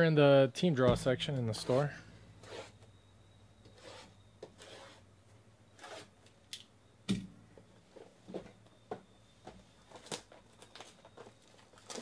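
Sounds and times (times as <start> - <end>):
loud knock: 0.9 - 2.0.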